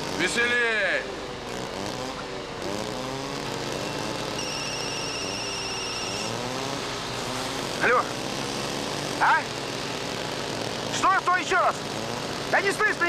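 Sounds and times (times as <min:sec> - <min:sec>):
machinery engines running: 0:00.0 - 0:13.0
mobile phone ringing: 0:04.4 - 0:06.3.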